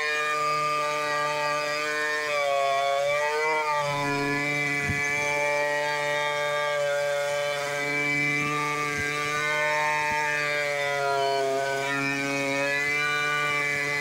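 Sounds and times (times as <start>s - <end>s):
chainsaw cutting a log: 0.0s - 14.0s.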